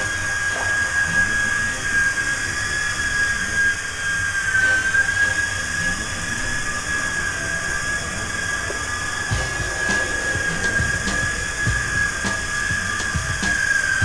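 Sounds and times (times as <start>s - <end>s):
toy helicopter motor whine: 0.0s - 14.0s.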